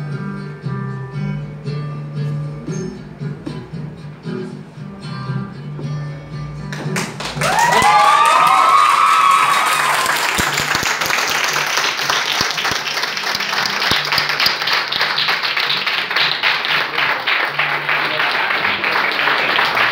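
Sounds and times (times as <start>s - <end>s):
audience applauding: 6.7s - 19.9s.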